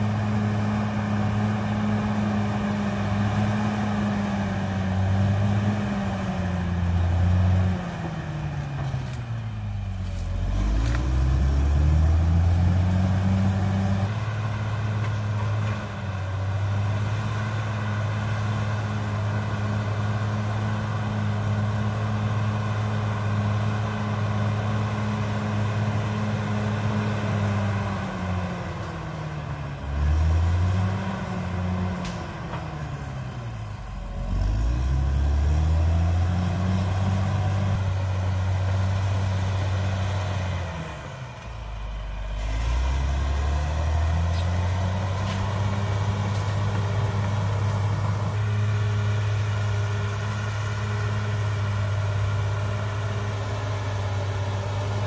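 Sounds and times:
bulldozer diesel engine running hard: 0.0s - 55.0s.

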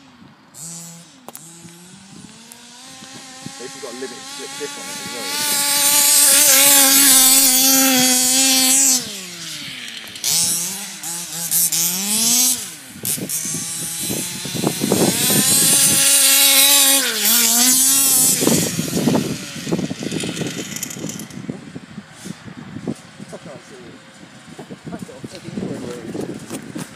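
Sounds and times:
small two-stroke engine revving: 0.0s - 22.5s.

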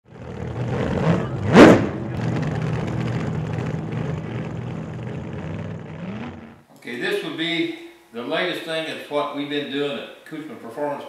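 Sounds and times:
engine running and revving: 0.1s - 6.6s.

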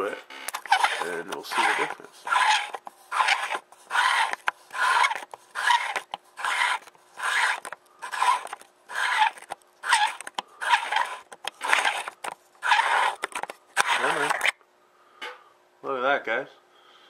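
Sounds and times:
lens threads rasping: 0.5s - 14.6s.

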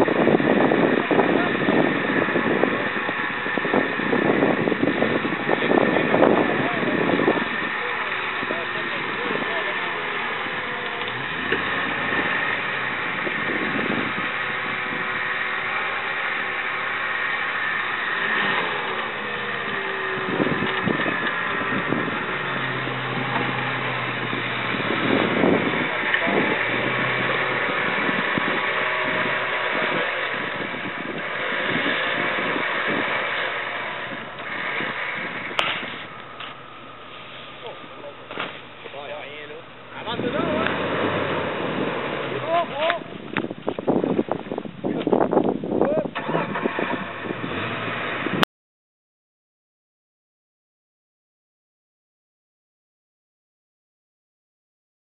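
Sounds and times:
electric winch whining: 0.0s - 44.3s, 46.1s - 48.4s
car engine running: 0.0s - 48.4s
background voices: 0.7s - 43.3s.

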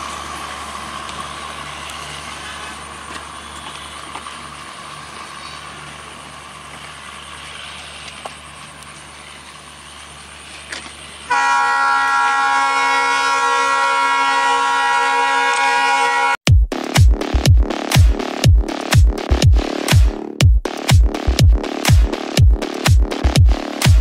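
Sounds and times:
faint diesel train rumble: 0.0s - 16.4s
train horn: 11.3s - 16.4s.

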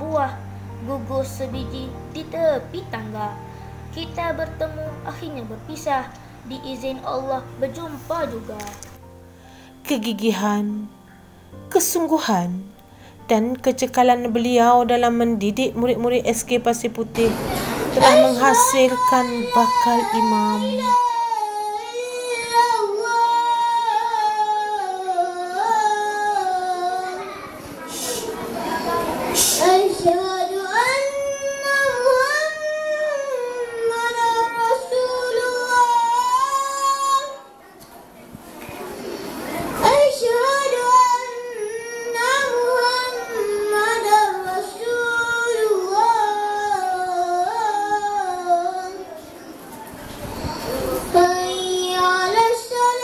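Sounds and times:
boy chanting call to prayer: 14.0s - 37.7s, 39.6s - 49.6s, 50.3s - 53.0s.

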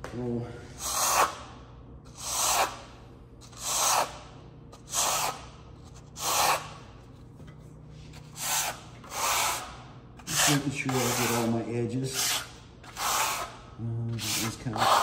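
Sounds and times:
trowel scraping plaster: 0.8s - 1.4s, 2.1s - 2.8s, 3.4s - 4.2s, 4.8s - 5.4s, 6.2s - 6.8s, 8.1s - 15.0s.

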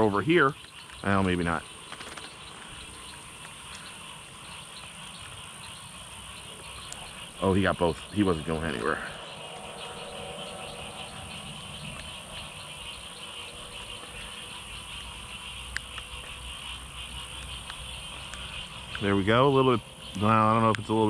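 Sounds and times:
insects trilling: 0.0s - 21.0s
faint clicks: 17.2s - 19.1s, 20.1s - 20.9s.

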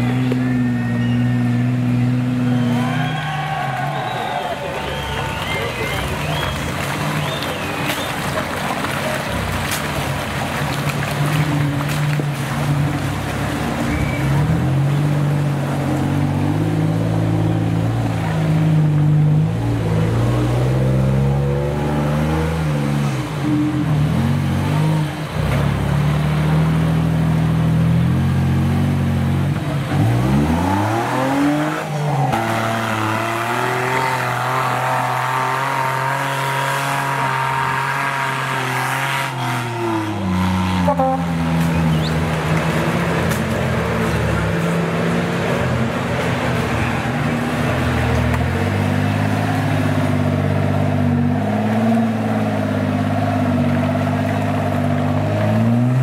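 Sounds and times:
engine revving: 14.3s - 56.0s.

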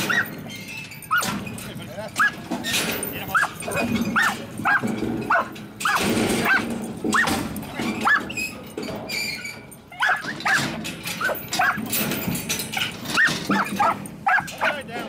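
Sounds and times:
dog barking sharply: 4.2s - 7.3s, 10.0s - 11.8s, 13.2s - 14.8s.

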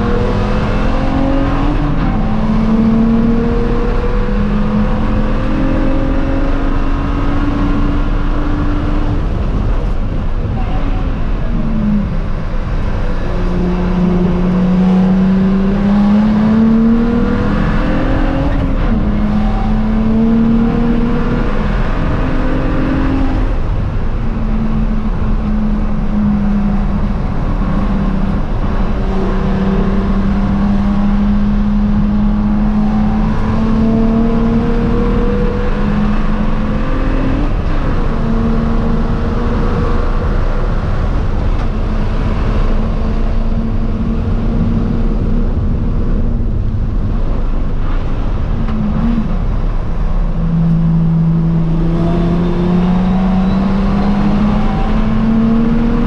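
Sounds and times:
car engine revving through gears: 0.0s - 56.0s.

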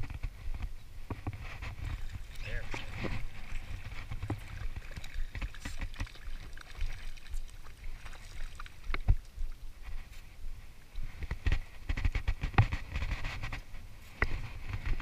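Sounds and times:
wind rumbling on microphone: 0.0s - 15.0s
fish splashing at surface: 1.7s - 9.3s.

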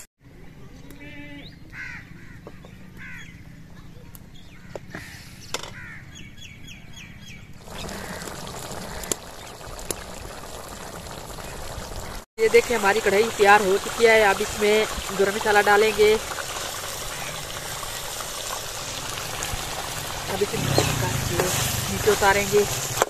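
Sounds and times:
birds chirping and calling: 0.8s - 3.6s, 20.3s - 21.6s
curry simmering in a pot: 7.6s - 23.0s.

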